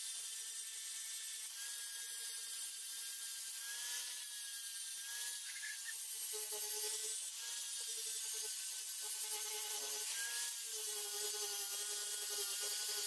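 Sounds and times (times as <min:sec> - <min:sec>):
angle grinder grinding steel: 0:00.0 - 0:13.0.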